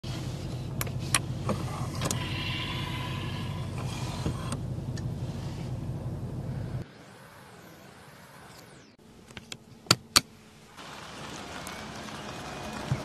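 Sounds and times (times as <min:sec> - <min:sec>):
low cabin hum: 0:00.1 - 0:06.8.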